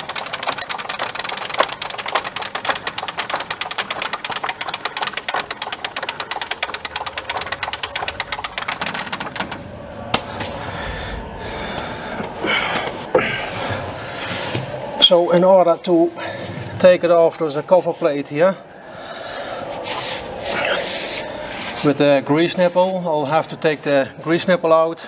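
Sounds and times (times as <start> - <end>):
jack ratchet clicking: 0.0 - 9.6.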